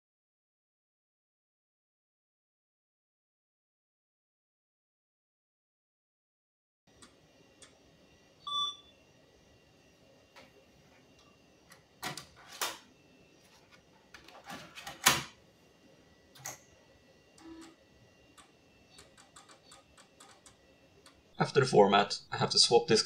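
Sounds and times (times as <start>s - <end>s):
short beep: 8.5s - 8.9s
disk drive ticking: 17.3s - 21.3s.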